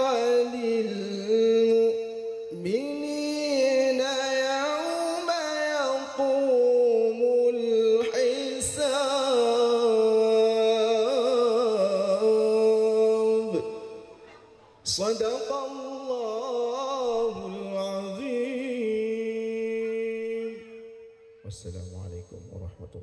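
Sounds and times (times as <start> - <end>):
man singing into a microphone: 0.0 - 21.1.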